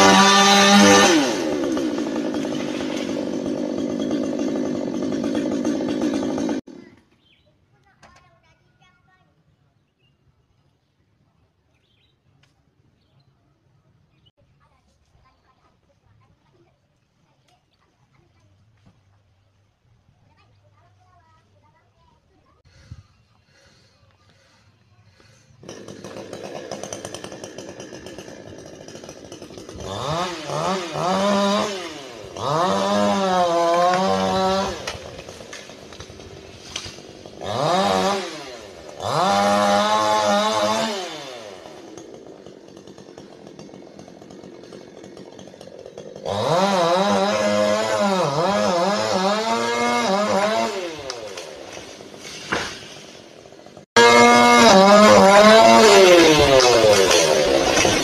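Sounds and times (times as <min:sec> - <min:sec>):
chainsaw idling and cutting: 0:00.0 - 0:07.0, 0:20.7 - 0:58.0.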